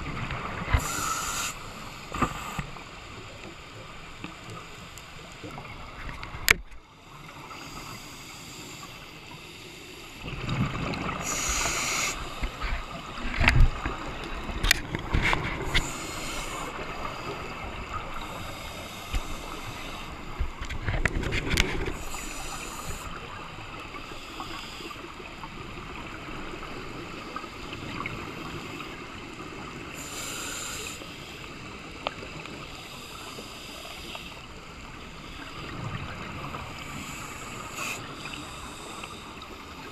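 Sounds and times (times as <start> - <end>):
steady watery hiss: 0.0 - 39.9
exhaled bubbles gurgling underwater: 10.1 - 39.9.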